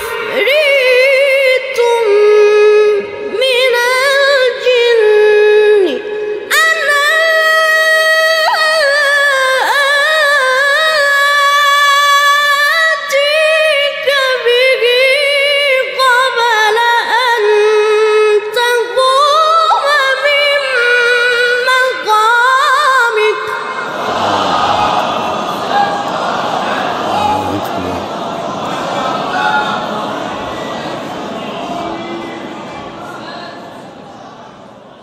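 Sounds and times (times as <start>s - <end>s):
person reciting melodically: 0.0s - 25.8s, 26.9s - 28.3s.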